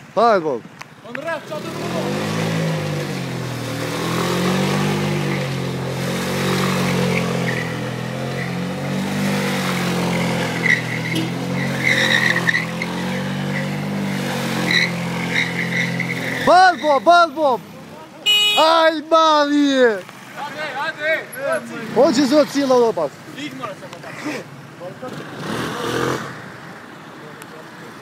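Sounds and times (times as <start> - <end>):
short high squeals: 10.4 - 13.8, 14.6 - 17.1.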